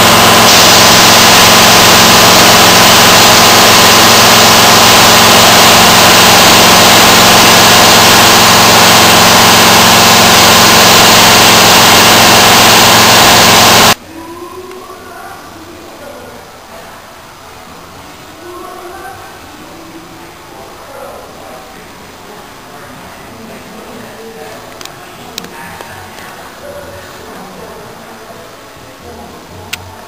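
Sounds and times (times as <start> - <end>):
low hum: 0.0 - 14.0
paint spray guns hissing: 0.0 - 14.0.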